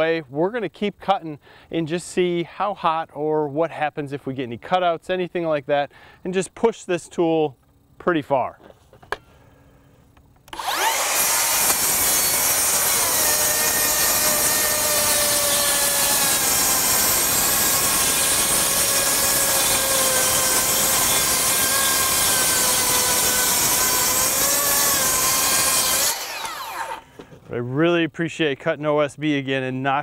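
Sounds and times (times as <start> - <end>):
circular saw cutting boards: 10.5 - 27.4.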